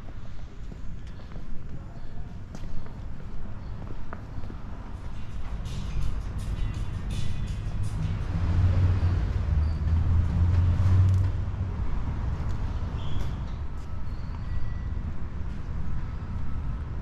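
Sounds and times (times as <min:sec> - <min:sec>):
steady street traffic: 0:00.0 - 0:17.0
passing vehicle engine rumble: 0:04.5 - 0:17.0.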